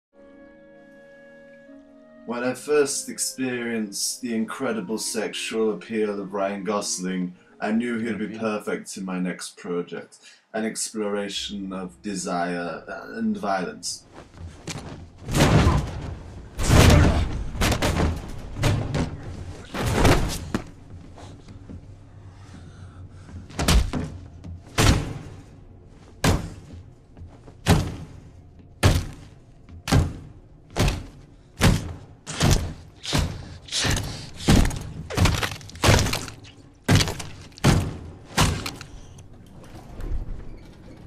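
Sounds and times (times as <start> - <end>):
heavy stamping thuds: 23.4 - 25.5, 26.1 - 38.8.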